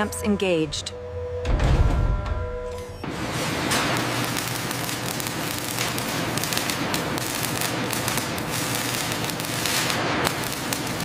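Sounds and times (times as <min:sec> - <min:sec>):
arc welding crackling: 0:02.8 - 0:11.0.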